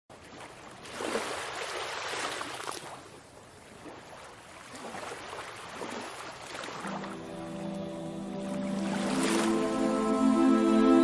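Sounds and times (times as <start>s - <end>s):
ocean waves washing onto beach: 3.9s - 10.1s.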